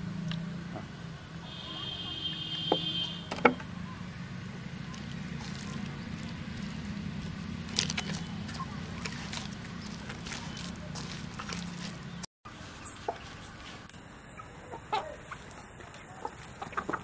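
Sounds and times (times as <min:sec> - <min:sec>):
hands kneading dough squishing: 0:04.8 - 0:12.3.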